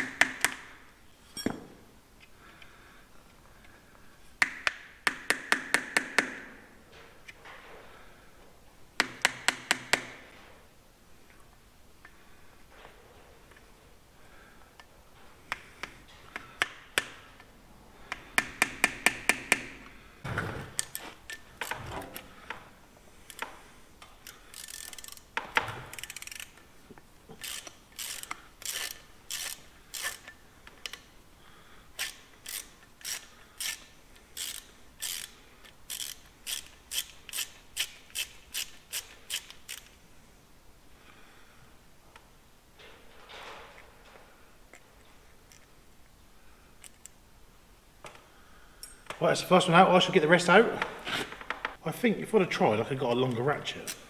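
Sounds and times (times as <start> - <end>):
socket ratchet clicking: 24.1 - 26.6, 27.4 - 31.1, 32.0 - 40.0.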